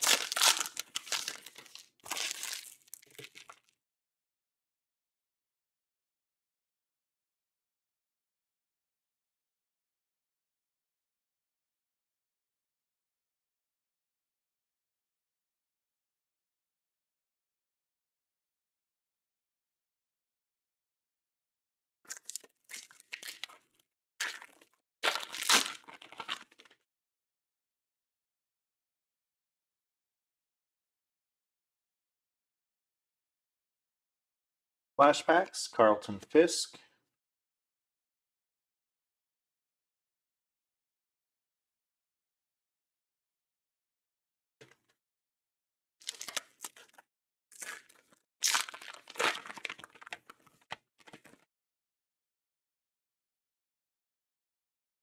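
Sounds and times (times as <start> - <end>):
wrapper crinkling and tearing: 0.0 - 3.7, 22.1 - 23.6, 24.2 - 26.7, 46.0 - 47.0, 47.6 - 51.4.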